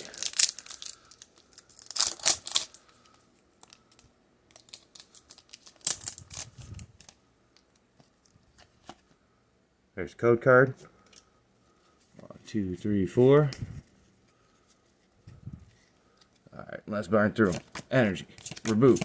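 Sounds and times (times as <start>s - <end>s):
foil wrapper tearing: 0.0s - 3.0s, 4.5s - 6.9s
foil crinkling: 0.0s - 7.2s.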